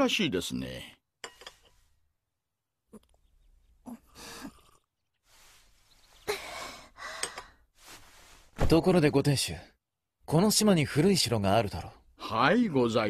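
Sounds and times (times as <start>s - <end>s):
woman sipping hot drink: 3.9s - 5.8s
soft breaths: 3.9s - 8.6s.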